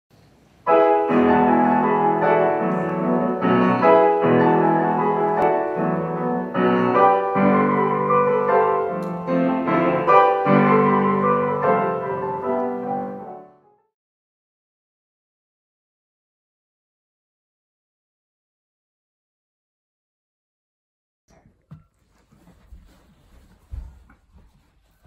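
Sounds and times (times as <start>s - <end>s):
grand piano chords: 0.6s - 13.9s.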